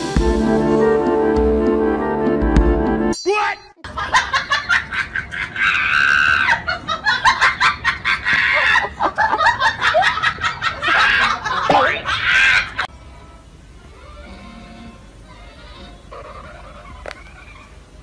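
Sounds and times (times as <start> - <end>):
husky screaming and yowling: 5.3 - 6.7, 8.1 - 9.0, 10.8 - 12.9.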